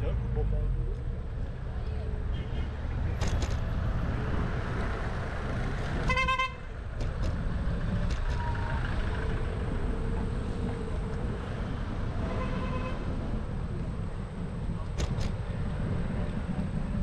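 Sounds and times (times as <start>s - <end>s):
road traffic rumble: 0.0s - 17.0s
vehicle horn toot: 6.0s - 6.7s, 12.2s - 13.1s.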